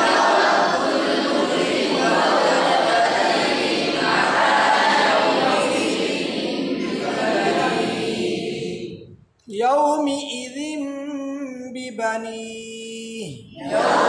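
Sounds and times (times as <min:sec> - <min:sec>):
group of voices chanting: 0:00.0 - 0:09.0, 0:13.6 - 0:14.0.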